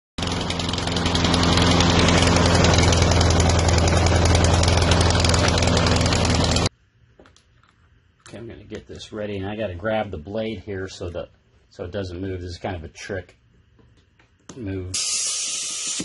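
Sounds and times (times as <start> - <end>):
lawn mower engine running: 0.2 - 6.7.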